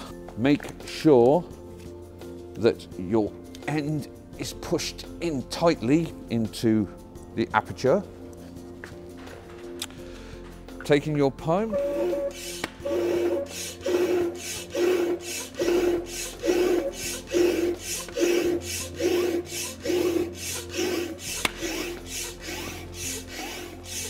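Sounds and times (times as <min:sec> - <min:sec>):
hand pump rush of air: 0:11.8 - 0:24.0.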